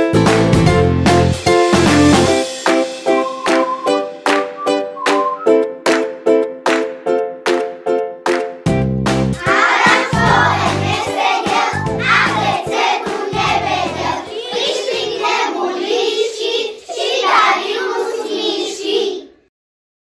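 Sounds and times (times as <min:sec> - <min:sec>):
backing instrument: 0:01.8 - 0:05.7
children singing: 0:09.4 - 0:19.4.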